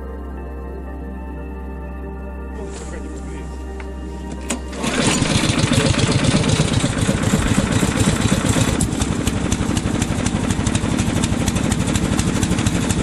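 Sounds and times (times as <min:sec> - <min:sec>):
small engine idling: 0:04.5 - 0:13.0.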